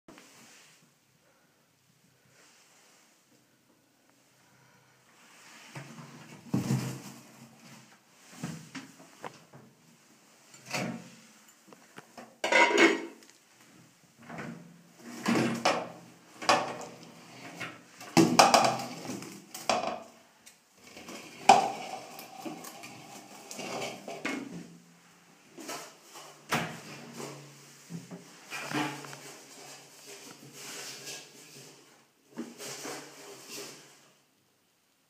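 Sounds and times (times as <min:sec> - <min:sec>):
pot and glass lid clattering: 0:12.4 - 0:13.2.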